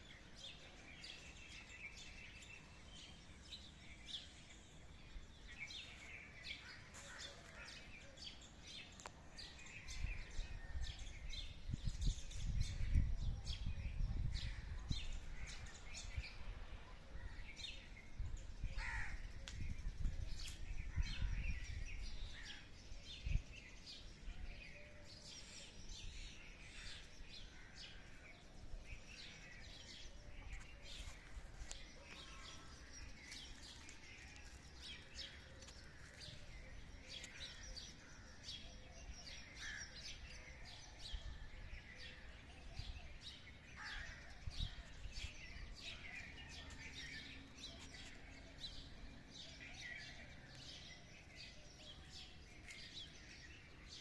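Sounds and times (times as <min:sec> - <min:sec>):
small birds chirping: 0:11.0 - 0:54.0.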